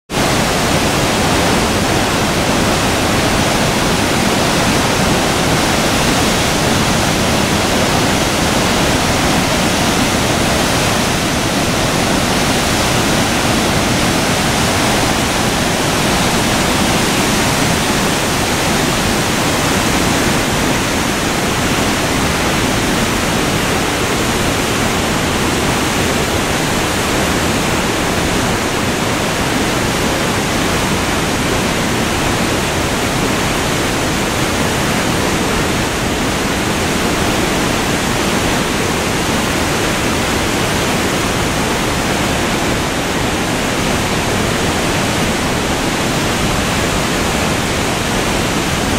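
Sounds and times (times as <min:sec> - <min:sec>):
waterfall rushing: 0:00.1 - 0:48.9.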